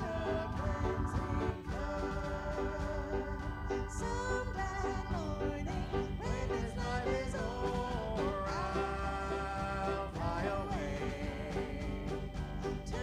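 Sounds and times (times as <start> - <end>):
congregation singing a hymn: 0.0 - 13.0
keyboard accompaniment: 0.0 - 13.0.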